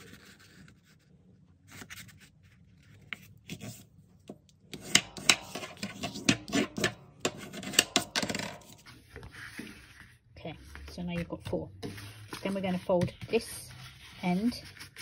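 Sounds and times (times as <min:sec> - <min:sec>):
sharp scrapes and taps on paper: 0:04.7 - 0:08.8
paper rustling: 0:08.8 - 0:15.0.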